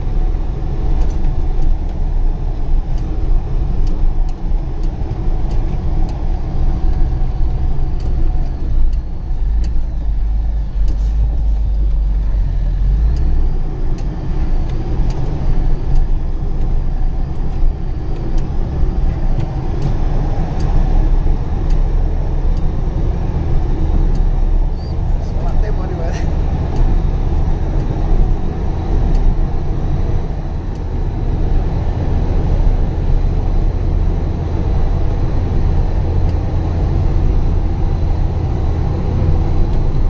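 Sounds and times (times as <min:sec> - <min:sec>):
truck engine rumble: 0:00.0 - 0:40.0.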